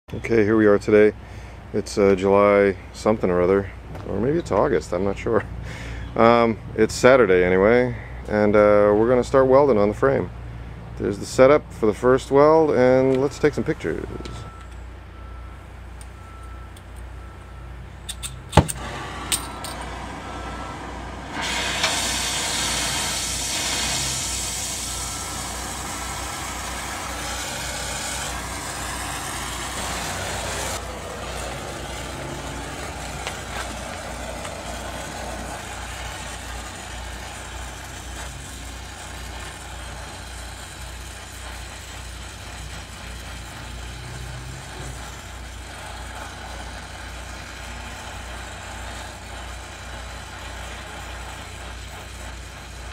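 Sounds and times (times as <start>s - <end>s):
arc welding sizzling hiss: 18.4s - 52.9s.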